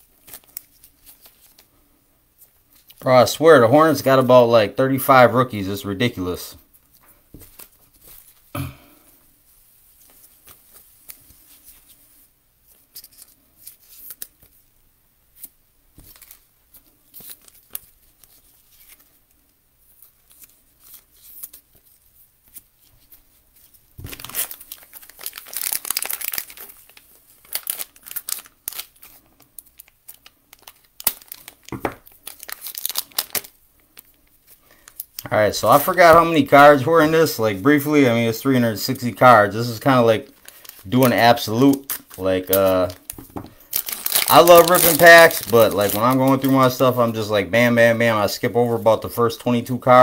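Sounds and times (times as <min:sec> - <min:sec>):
card rustling: 0:00.0 - 0:01.8, 0:09.9 - 0:14.6, 0:15.3 - 0:49.3
trading cards flipped by hand: 0:12.6 - 0:14.6.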